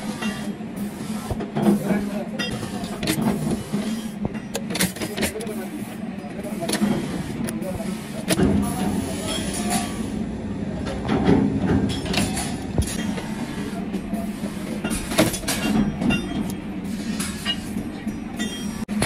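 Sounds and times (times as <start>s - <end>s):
steady low hum: 0.0s - 19.0s
sharp metal clanks: 14.8s - 16.6s.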